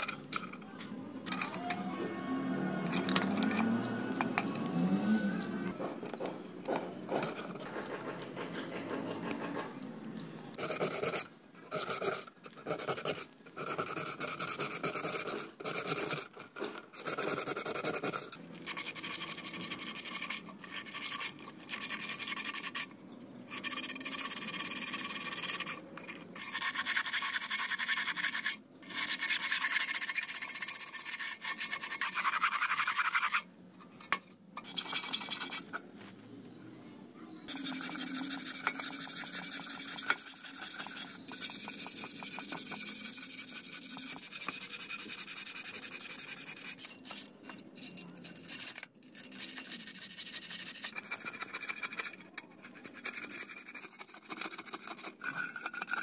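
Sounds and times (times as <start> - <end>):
wire brush scrubbing metal tube: 10.6 - 22.9, 23.5 - 33.4, 34.6 - 35.8, 37.5 - 56.0
sandpaper rubbing on metal: 23.5 - 33.4, 34.6 - 35.8, 37.5 - 56.0.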